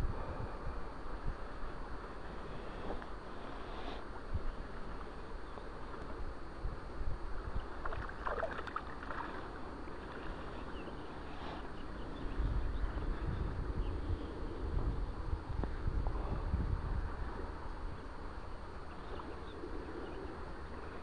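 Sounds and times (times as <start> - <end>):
river water flowing and lapping: 0.4 - 13.2.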